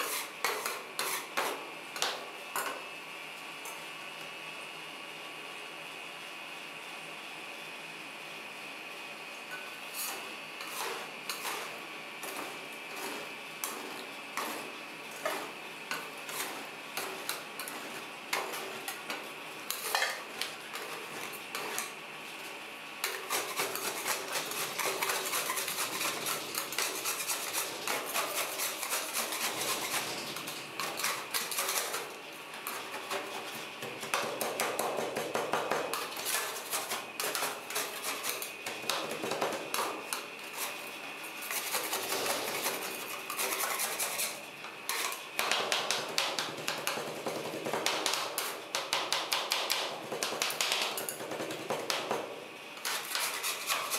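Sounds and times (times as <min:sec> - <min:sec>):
metal spatulas scraping on steel: 0:00.0 - 0:01.4, 0:10.0 - 0:15.5, 0:23.0 - 0:33.5, 0:41.4 - 0:45.2, 0:52.8 - 0:53.9.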